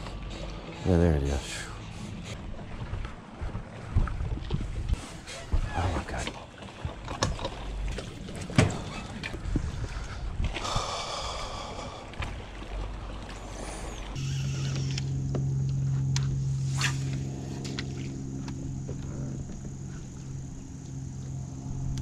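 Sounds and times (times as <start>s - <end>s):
electric trolling motor humming: 6.4s - 22.0s.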